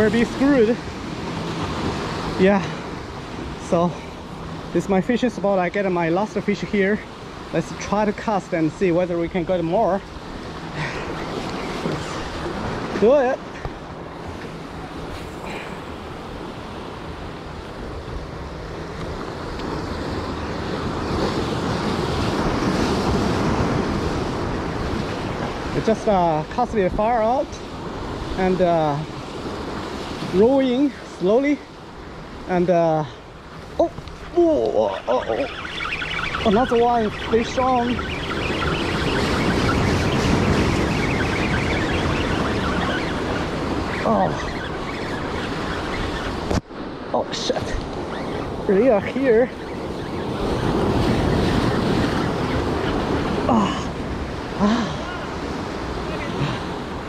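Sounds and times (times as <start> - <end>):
surf washing against rocks: 0.0 - 57.0
wind buffeting microphone: 33.2 - 57.0.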